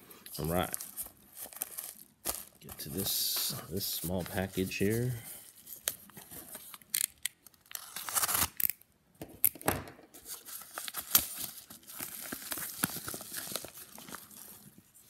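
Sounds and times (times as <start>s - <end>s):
plastic package ripping and crinkling: 0.4s - 8.8s, 10.2s - 15.0s.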